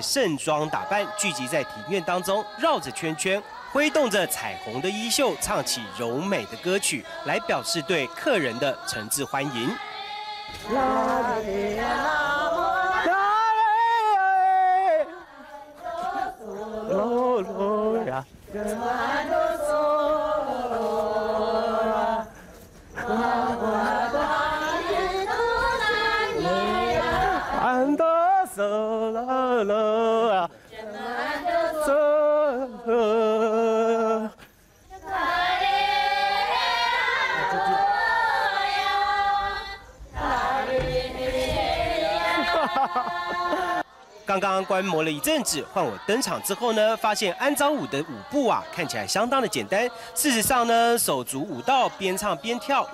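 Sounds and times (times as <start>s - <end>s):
voices singing unaccompanied: 0.0s - 52.9s.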